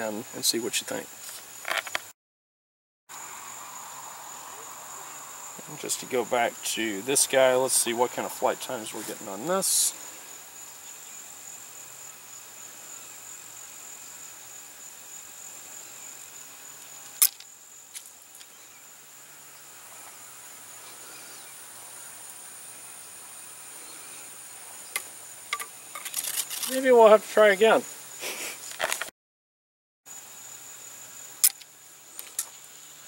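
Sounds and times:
insects chirring: 0.0s - 2.1s, 3.1s - 29.1s, 30.1s - 33.0s
sharp click: 31.4s - 32.5s.

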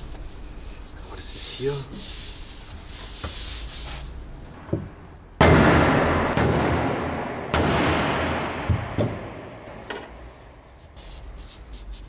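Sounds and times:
loud bang on sheet steel: 5.4s - 9.8s.

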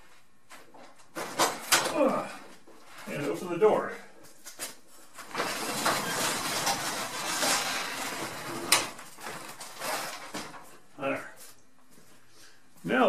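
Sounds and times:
garage door rolling and rattling: 5.2s - 10.8s.

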